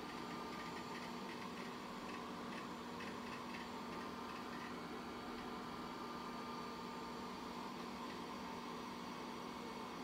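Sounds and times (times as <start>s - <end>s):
hard drive seeking ticks: 0.0s - 4.8s
computer fan and drive hum: 0.0s - 10.0s.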